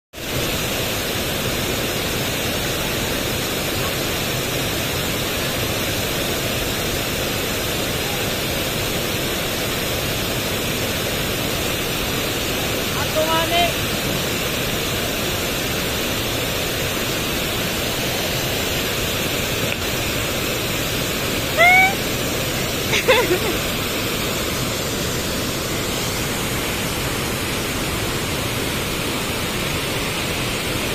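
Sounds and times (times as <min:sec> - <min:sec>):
waterfall rushing: 0:00.2 - 0:30.9.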